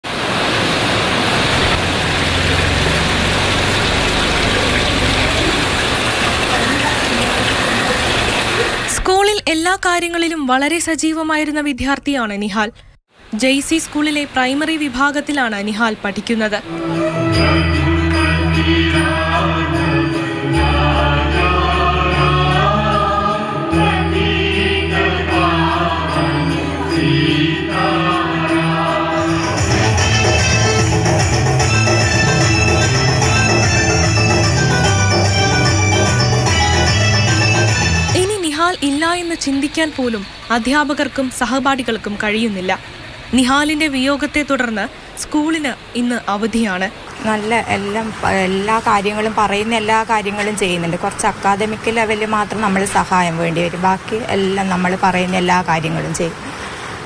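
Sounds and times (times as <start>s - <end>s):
song with voices: 16.5s - 39.6s.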